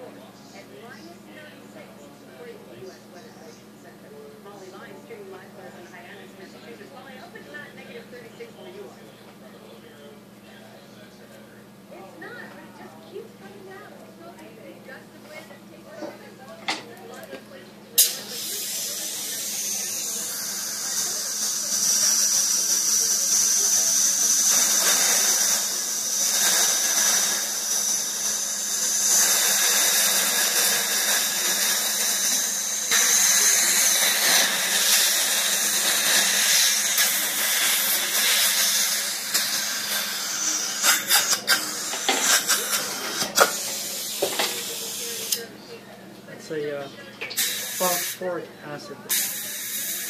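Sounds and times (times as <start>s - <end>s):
dental drill whining: 18.0s - 45.4s, 47.3s - 48.3s, 49.1s - 50.0s
suction hiss: 18.0s - 45.4s, 47.3s - 48.3s, 49.1s - 50.0s.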